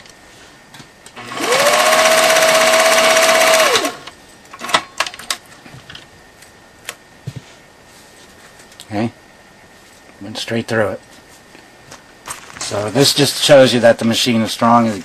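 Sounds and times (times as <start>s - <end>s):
sewing machine stitching: 1.2s - 4.1s.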